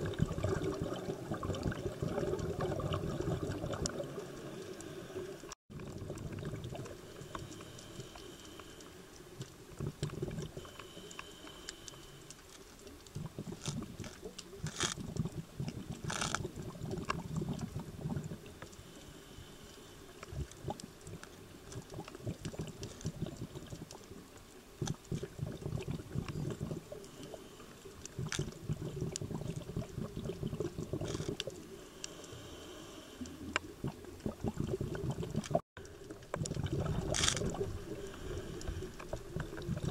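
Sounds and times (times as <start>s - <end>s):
exhaled bubbles rumbling underwater: 0.0s - 8.6s, 9.3s - 10.9s, 12.9s - 18.7s, 20.2s - 31.9s, 33.3s - 39.9s
small clicks: 7.2s - 15.2s, 16.0s - 16.5s, 31.0s - 32.4s, 37.1s - 37.6s.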